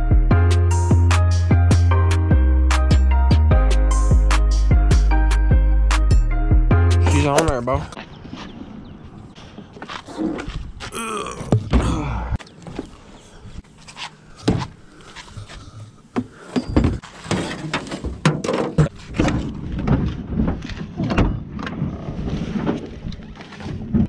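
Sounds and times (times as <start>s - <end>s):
knocks and thumps of items shifted: 16.2s - 24.0s.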